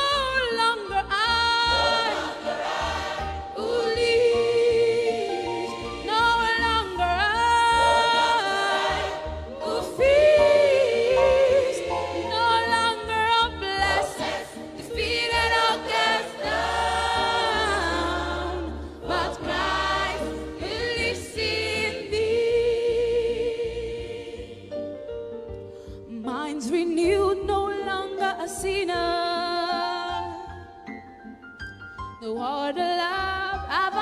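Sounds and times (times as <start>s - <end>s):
choir singing held notes: 1.6s - 6.8s, 7.7s - 24.9s.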